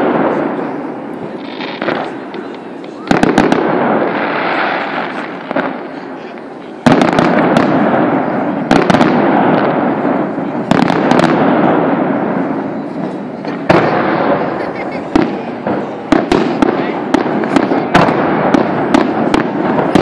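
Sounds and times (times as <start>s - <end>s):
fireworks bursting with bangs: 0.0s - 20.0s.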